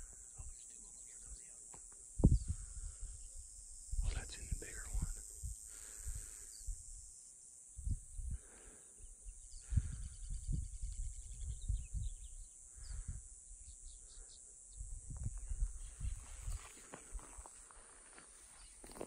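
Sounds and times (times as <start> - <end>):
steady high hiss: 0.0 - 9.7
low thumps on microphone: 2.2 - 2.6
faint bird chirps: 8.9 - 16.7.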